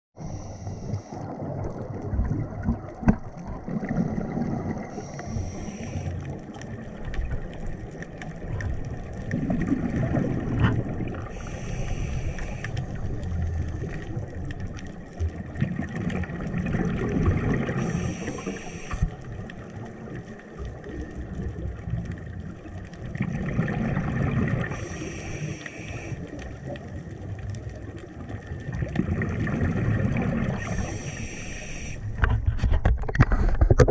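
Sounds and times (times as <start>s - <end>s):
regulator inhale hiss: 0.2s - 1.3s, 4.9s - 6.4s, 11.3s - 13.0s, 17.7s - 19.2s, 24.6s - 26.4s, 30.5s - 32.2s
exhaled bubbles rumbling underwater: 0.2s - 33.9s.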